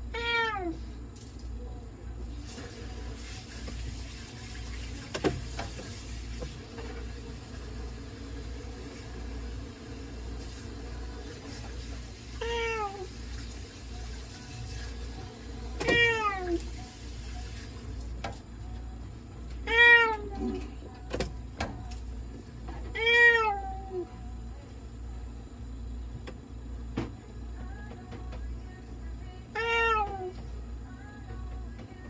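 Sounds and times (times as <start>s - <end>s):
steady low hum: 0.0s - 12.2s, 16.8s - 32.0s
cat meowing: 0.1s - 0.8s, 12.4s - 13.1s, 15.8s - 16.6s, 19.6s - 20.6s, 22.9s - 24.0s, 29.6s - 30.3s.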